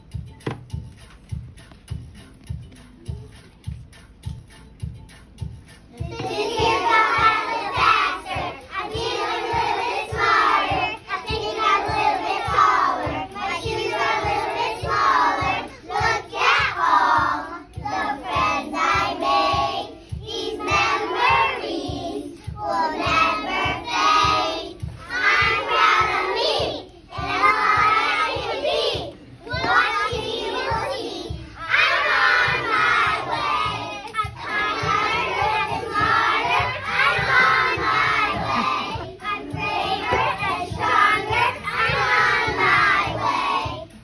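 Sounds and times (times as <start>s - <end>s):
recorded song with steady beat: 0.0s - 44.0s
children singing: 5.9s - 44.0s.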